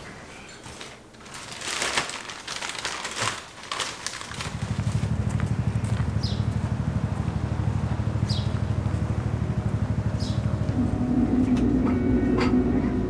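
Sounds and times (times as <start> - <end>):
bags rustling and crinkling: 0.0 - 6.1
low fast-pulsing rumble: 4.6 - 13.0.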